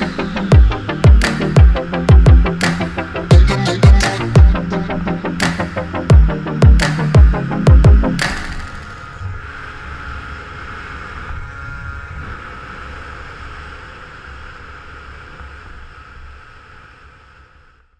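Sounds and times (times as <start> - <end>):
low rumble: 0.0 - 10.0.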